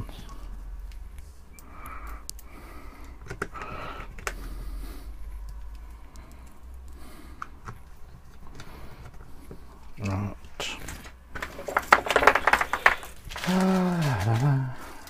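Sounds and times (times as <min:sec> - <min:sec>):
scraping rustles: 0:10.6 - 0:15.0.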